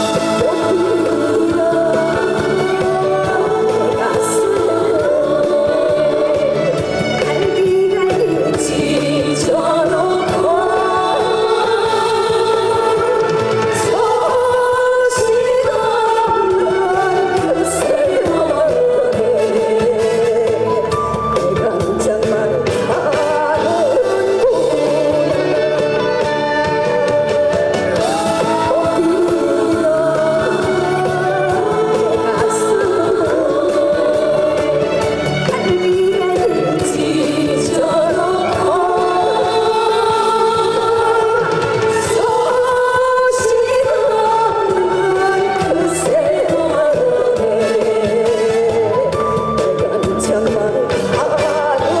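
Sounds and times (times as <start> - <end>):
backing track music: 0.0 - 52.0
woman singing into a microphone: 0.0 - 52.0.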